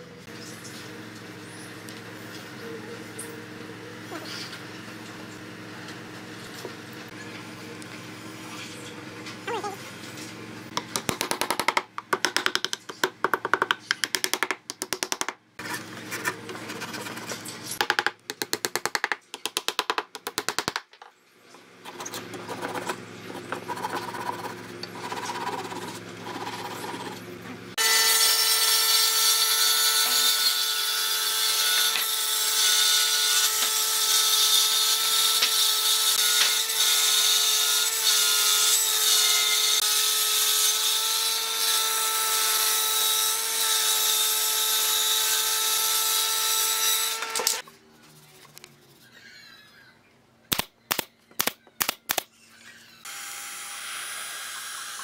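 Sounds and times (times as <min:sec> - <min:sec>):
hand saw cutting wood: 0:21.8 - 0:27.2, 0:27.8 - 0:47.6.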